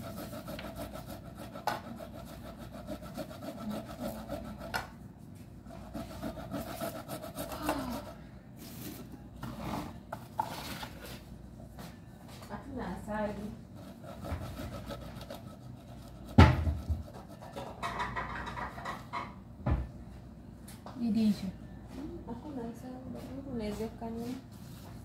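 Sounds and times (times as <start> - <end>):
rasping and rubbing of food: 0.0 - 8.2, 13.4 - 18.7.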